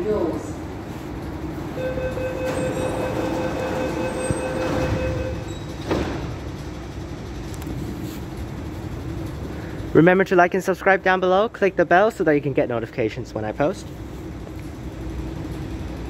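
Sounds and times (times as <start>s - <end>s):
low rumble of standing train: 0.0s - 16.0s
train doors shutting: 1.1s - 9.8s
door closing warning tone: 1.7s - 6.4s.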